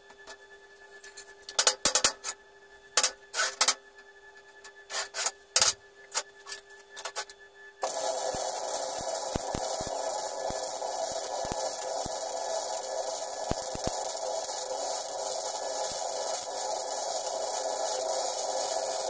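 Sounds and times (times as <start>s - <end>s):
welder arc crackling: 7.8s - 19.0s.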